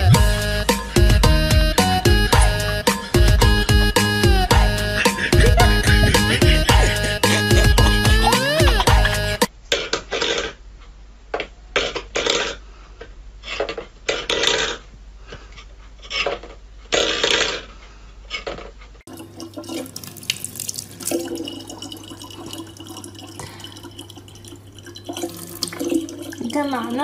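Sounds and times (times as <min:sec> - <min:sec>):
tap running thin stream: 0:19.1 - 0:26.6.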